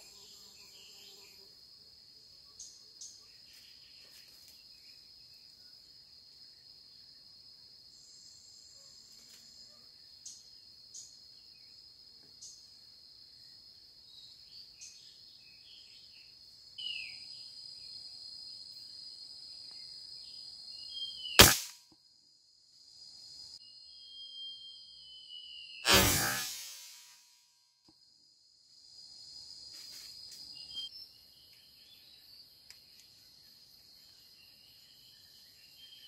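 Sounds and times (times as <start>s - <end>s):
rifle shot: 21.4s - 21.8s, 25.9s - 27.1s
high-pitched insect drone: 23.6s - 27.2s
short chirps: 25.8s - 27.2s.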